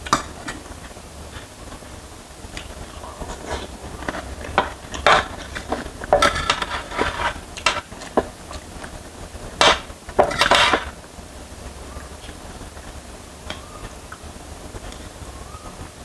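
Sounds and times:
cutlery scraping metal tray: 3.2s - 7.9s, 9.6s - 11.0s.

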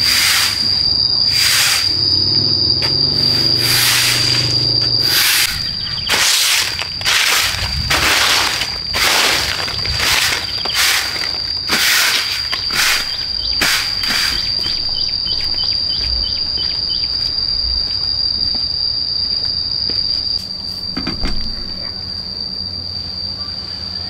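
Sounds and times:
insects droning: 0.0s - 24.0s
loud swishes: 3.3s - 5.6s.

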